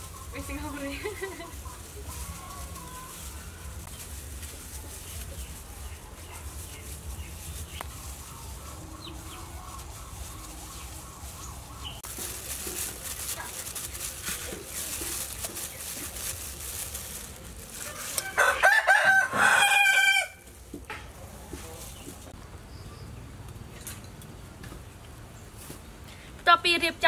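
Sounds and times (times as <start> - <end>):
plastic bag crinkling: 0.0 - 20.0
rooster crowing: 17.8 - 20.5.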